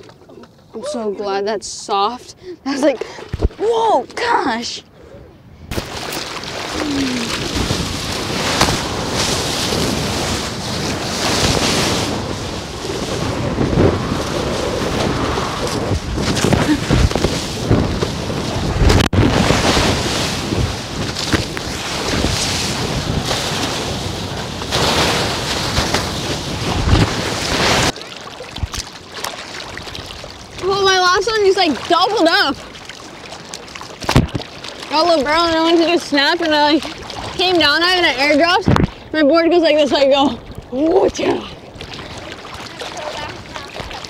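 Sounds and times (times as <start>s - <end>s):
ocean waves breaking: 2.4s - 44.0s
wind buffeting microphone: 6.7s - 27.9s.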